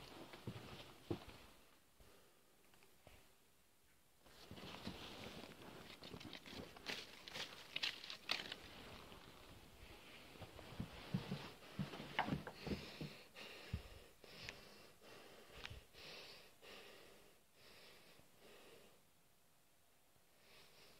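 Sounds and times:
man breathing heavily: 9.8 - 19.1, 20.4 - 20.9.

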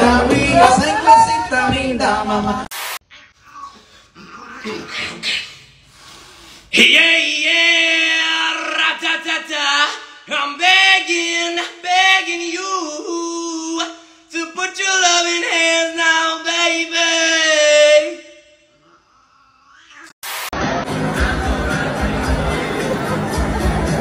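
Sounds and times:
man singing long notes: 6.8 - 18.6.

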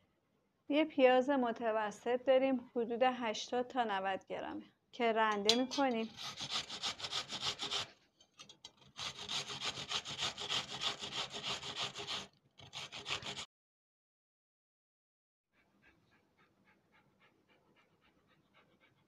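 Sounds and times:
onion grated on metal grater: 5.5 - 13.5.

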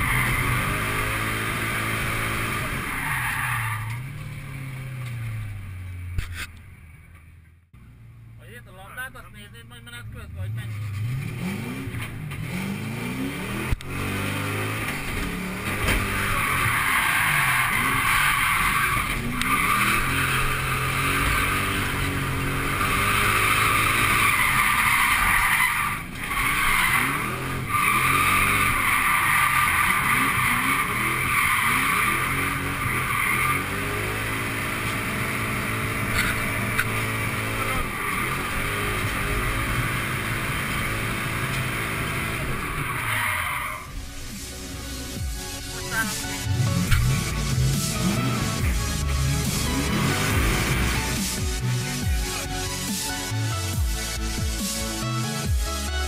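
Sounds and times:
car engine revving: 0.0 - 7.2, 9.4 - 55.0
tyres squealing: 16.0 - 44.0.

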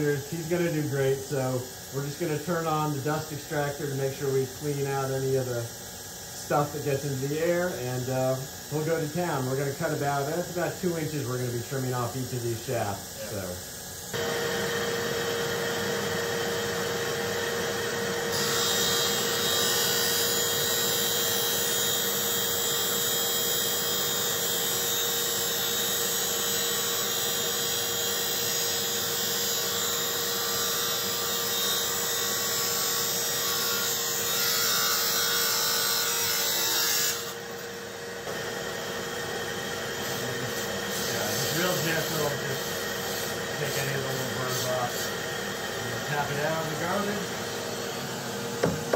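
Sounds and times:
dust extractor running: 13.2 - 26.1, 37.3 - 48.9
motor hum: 45.1 - 48.9.

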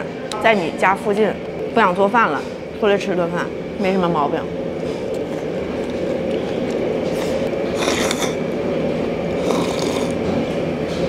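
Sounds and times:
steady droning hum: 0.0 - 11.0
person chewing: 4.8 - 8.6, 9.3 - 10.3
slurping soup: 4.9 - 8.5, 9.4 - 10.3.

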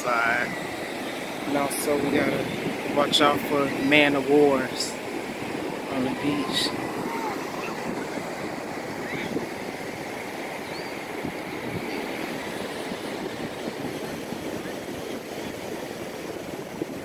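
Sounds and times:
surf: 0.0 - 17.0
wind: 0.0 - 17.0.

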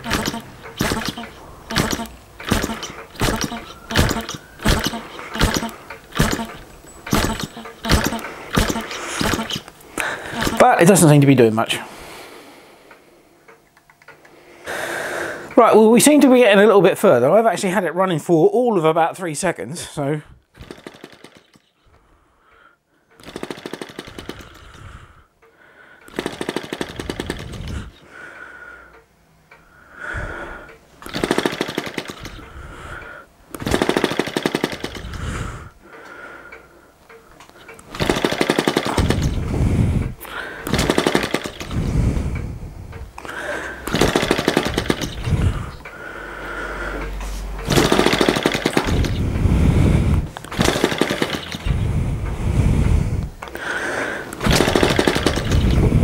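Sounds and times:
model engine firing in bursts: 0.0 - 9.7, 10.3 - 10.8, 20.6 - 21.6, 23.2 - 24.8, 26.1 - 27.9, 31.0 - 32.4, 33.5 - 35.3, 37.9 - 41.8, 43.8 - 45.6, 47.7 - 52.0, 54.4 - 56.0.

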